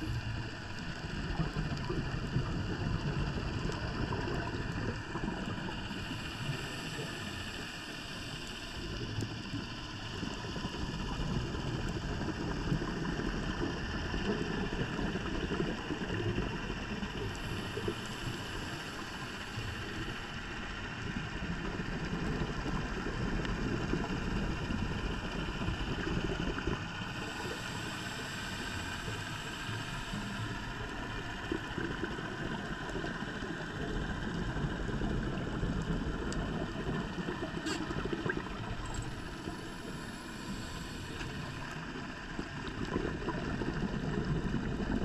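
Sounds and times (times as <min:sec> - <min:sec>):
diver regulator breathing and bubbles: 0:00.0 - 0:45.0.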